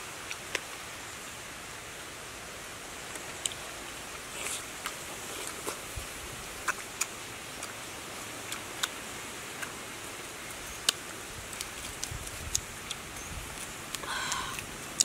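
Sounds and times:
steady outdoor hiss: 0.0 - 15.0
eating and handling fruit clicks: 3.1 - 6.0, 6.6 - 15.0.

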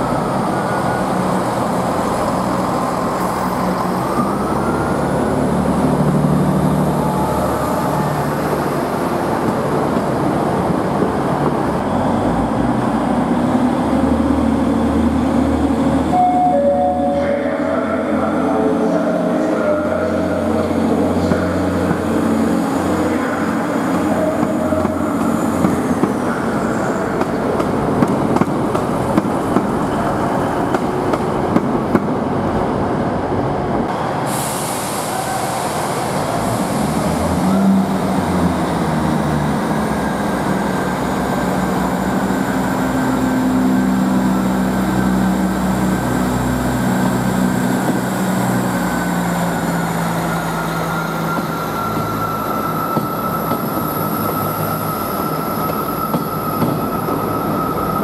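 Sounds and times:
diesel train engines droning: 0.0 - 58.0
train wheels clicking over rail joints: 27.2 - 29.9, 50.8 - 57.4.

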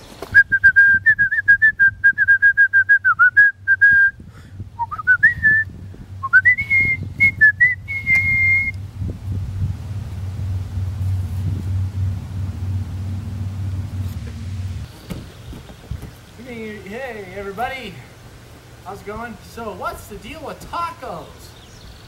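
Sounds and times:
person whistling a tune: 0.4 - 4.2, 4.8 - 8.8.

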